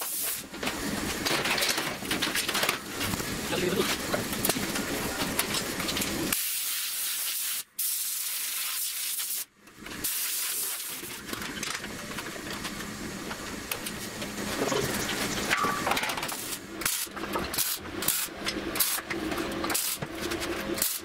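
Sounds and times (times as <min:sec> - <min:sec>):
welding arc crackling hiss: 0:00.0 - 0:01.2, 0:02.9 - 0:11.2, 0:16.2 - 0:19.0, 0:19.7 - 0:20.0, 0:20.8 - 0:21.0.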